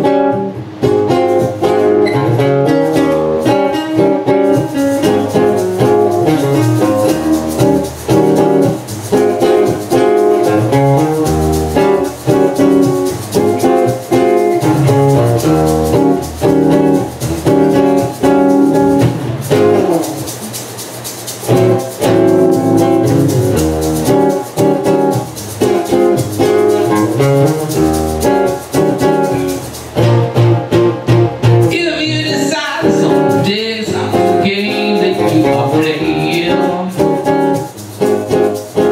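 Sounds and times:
acoustic guitars strumming: 0:00.0 - 0:38.9
person singing: 0:31.7 - 0:37.3.

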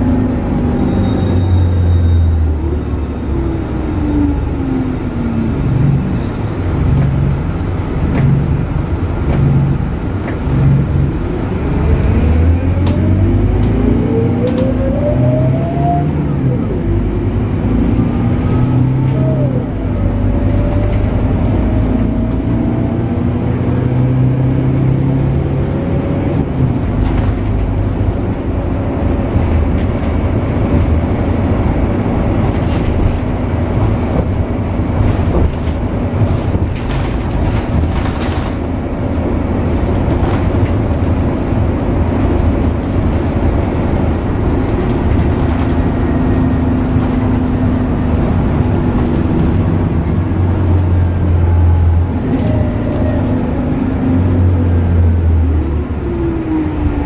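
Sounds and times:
bus diesel engine droning: 0:00.0 - 0:57.0
road noise: 0:00.0 - 0:57.0.

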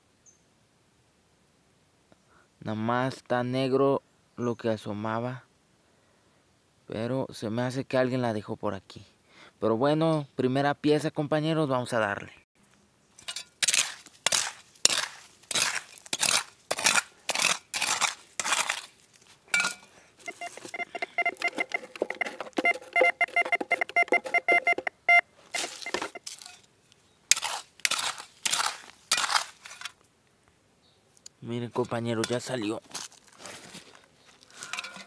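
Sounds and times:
digging tool scraping stony soil: 0:13.2 - 0:24.8, 0:25.4 - 0:26.7, 0:27.3 - 0:30.0, 0:31.7 - 0:35.0
metal detector pulsing tone: 0:19.6 - 0:26.2.

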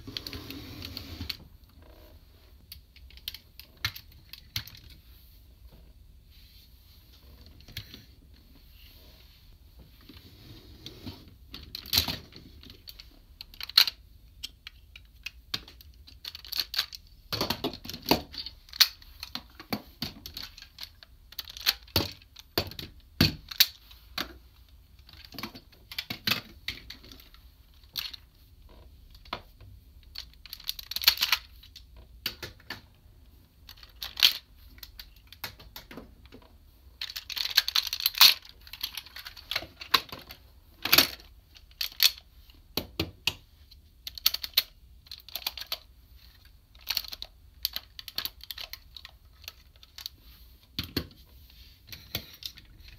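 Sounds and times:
plastic toy parts clicking and clattering: 0:02.7 - 0:05.0, 0:11.5 - 0:28.3, 0:30.0 - 0:32.8, 0:33.6 - 0:36.4, 0:37.0 - 0:51.1, 0:51.9 - 0:52.9.

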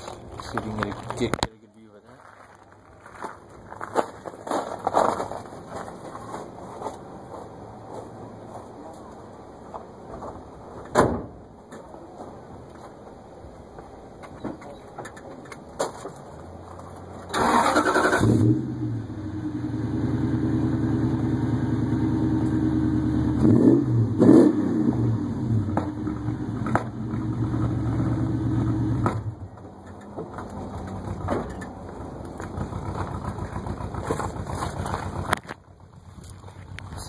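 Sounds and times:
truck engine starting and idling: 0:16.2 - 0:37.0
engine revving: 0:17.3 - 0:29.2.

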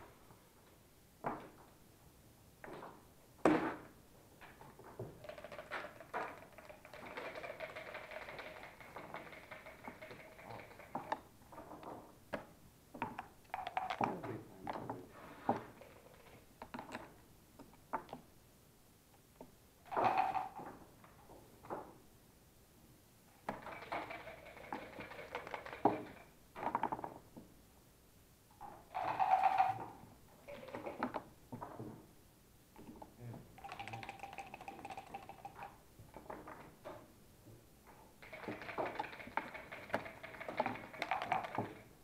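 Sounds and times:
dice rattling in cup: 0:05.1 - 0:11.2, 0:13.6 - 0:14.1, 0:19.9 - 0:20.6, 0:23.5 - 0:26.2, 0:28.9 - 0:29.8, 0:33.6 - 0:35.8, 0:38.2 - 0:41.9.

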